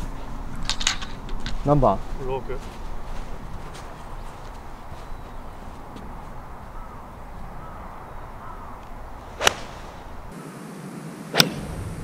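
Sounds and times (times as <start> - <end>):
golf club striking ball: 9.4 - 10.3.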